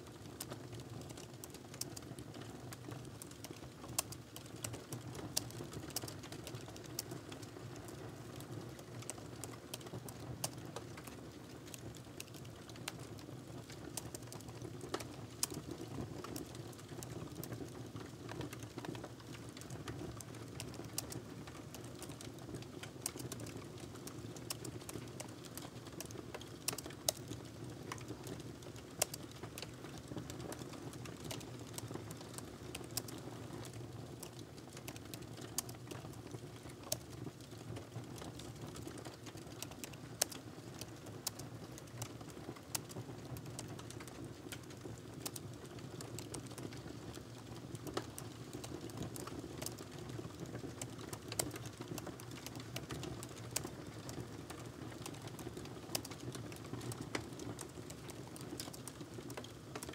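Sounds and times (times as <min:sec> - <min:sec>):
typing on laptop keyboard: 0:19.6 - 0:59.9.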